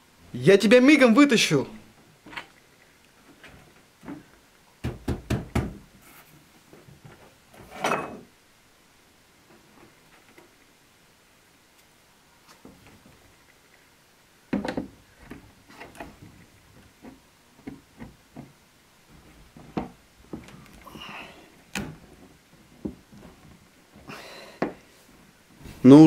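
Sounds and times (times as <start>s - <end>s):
wooden knocks and thuds: 4.0s - 5.9s, 14.5s - 20.7s, 21.7s - 24.8s.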